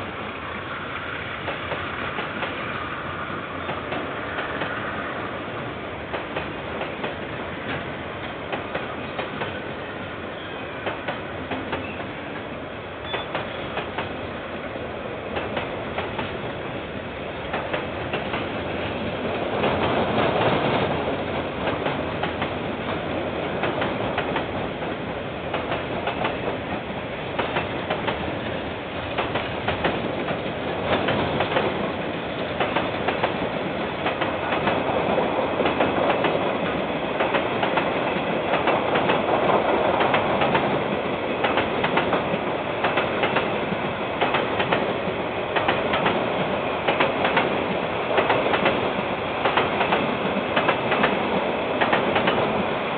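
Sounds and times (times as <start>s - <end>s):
train wagons rumbling: 0.0s - 52.9s
wheels clicking over rail joints: 23.6s - 45.0s, 45.6s - 52.6s.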